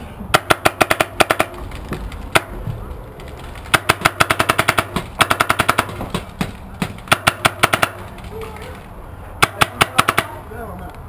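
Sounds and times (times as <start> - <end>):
paintball marker firing sharp pops: 0.4 - 1.6, 3.7 - 8.2, 9.4 - 10.4.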